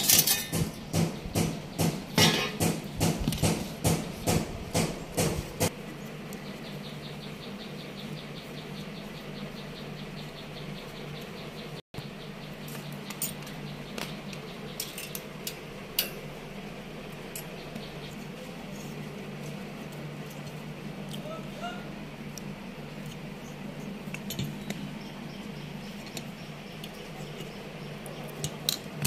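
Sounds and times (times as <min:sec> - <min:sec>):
tools tapping copper tubing: 0:00.0 - 0:05.7, 0:14.8 - 0:16.2
steady low hum: 0:00.0 - 0:29.0
sharp metal clicks: 0:12.7 - 0:16.2.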